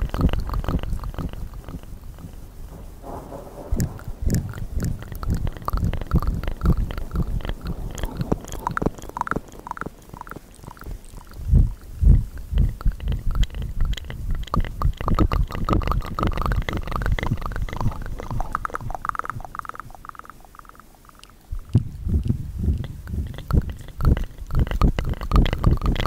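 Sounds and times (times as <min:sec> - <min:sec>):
mouth clicks and pops: 0:00.0 - 0:02.5, 0:03.8 - 0:26.0
low thuds: 0:00.0 - 0:09.9, 0:21.5 - 0:24.9.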